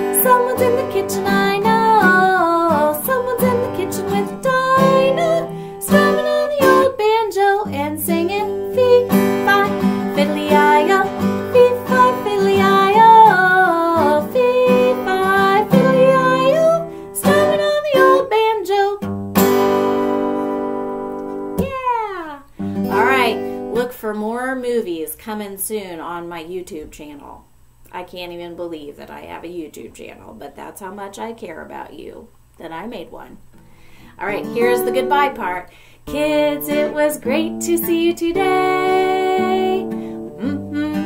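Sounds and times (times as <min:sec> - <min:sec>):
acoustic guitar strumming: 0:00.0 - 0:18.4, 0:19.0 - 0:23.8, 0:33.6 - 0:35.5, 0:36.1 - 0:41.0
woman singing: 0:00.0 - 0:19.0, 0:34.2 - 0:41.0.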